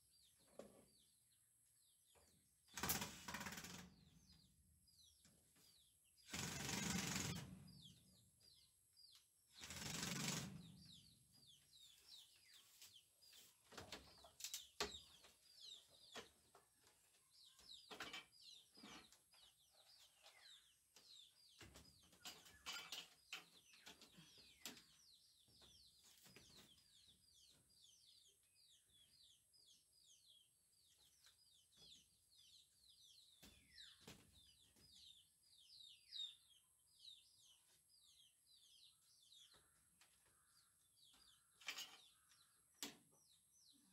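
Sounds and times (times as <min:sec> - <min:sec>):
small birds chirping: 0:00.0 - 0:43.9.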